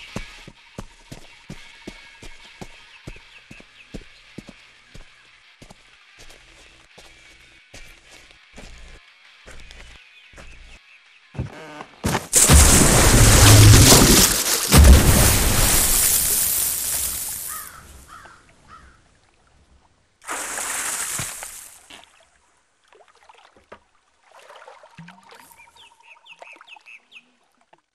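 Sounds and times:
huge water splash: 12.4s - 17.7s, 20.2s - 21.8s
water sloshing: 12.4s - 18.0s.

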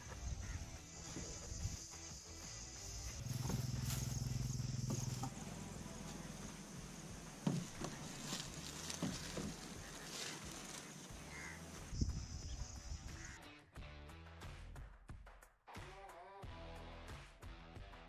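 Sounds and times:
dull knocks and thumps: 3.2s - 5.4s, 7.3s - 9.9s.

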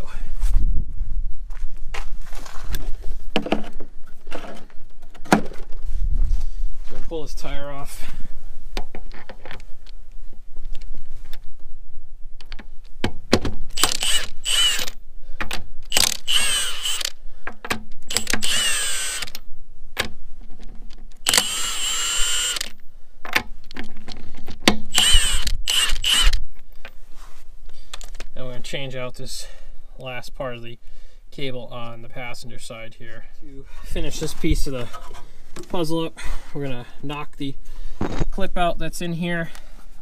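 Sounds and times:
impact wrench whining: 13.7s - 15.0s, 15.9s - 17.2s, 18.1s - 19.4s, 21.2s - 22.8s, 24.8s - 26.4s.

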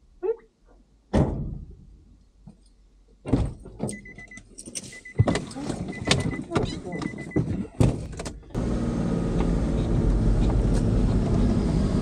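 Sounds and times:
keys jangling: 3.8s - 5.1s
electronic warning beep: 3.9s - 7.5s.

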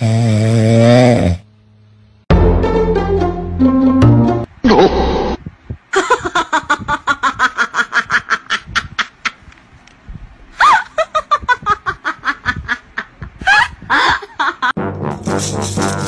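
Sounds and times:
person giggling: 5.9s - 9.4s, 10.6s - 14.7s.

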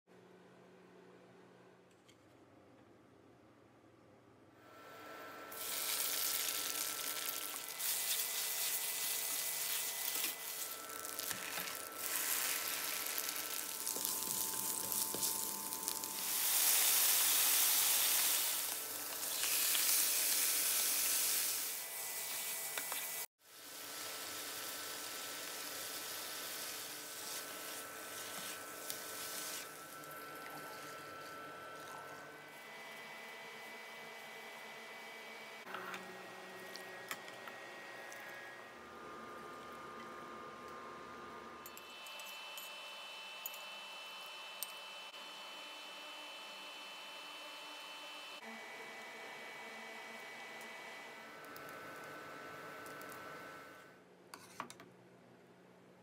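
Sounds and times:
oil sizzling in a frying pan: 5.5s - 30.0s.

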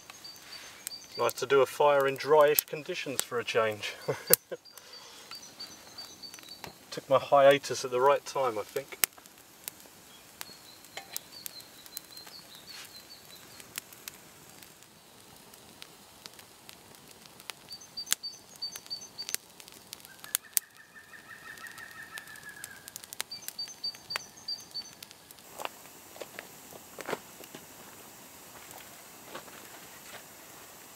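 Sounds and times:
birds singing: 0.0s - 8.6s, 10.0s - 13.7s, 17.7s - 19.4s, 20.0s - 25.1s
fire crackling and popping: 0.0s - 30.9s
bird trilling: 20.2s - 25.0s.

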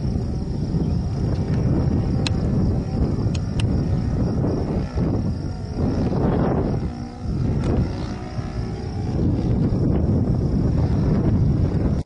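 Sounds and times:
model plane engine droning overhead: 0.0s - 12.0s
wind rumble on microphone: 0.0s - 12.0s.

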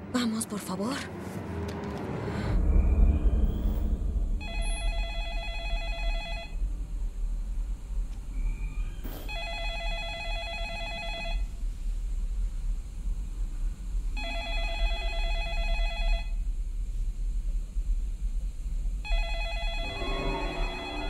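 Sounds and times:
steady low rumble: 0.0s - 9.5s, 11.4s - 21.0s
telephone ringing: 4.4s - 6.6s, 9.3s - 11.5s, 14.2s - 16.3s, 19.1s - 21.0s.

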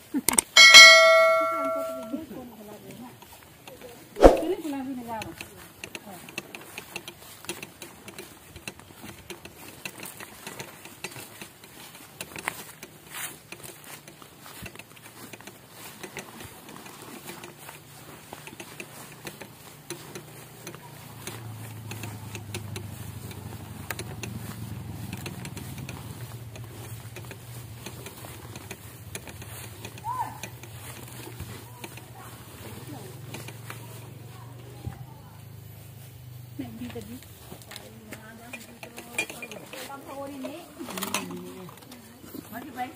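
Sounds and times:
footsteps through grass: 1.1s - 38.4s.

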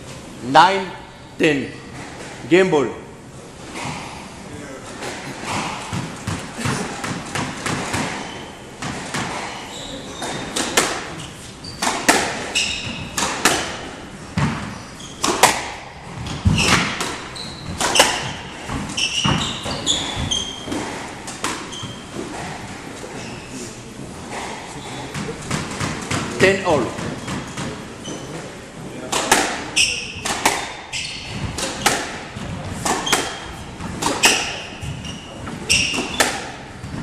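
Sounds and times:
shoes squeaking on wooden floor: 3.6s - 28.6s, 29.6s - 37.0s
squash ball cracks: 10.2s - 11.2s, 11.8s - 12.5s, 13.1s - 14.6s, 15.2s - 18.9s, 29.1s - 34.7s, 35.7s - 36.8s.

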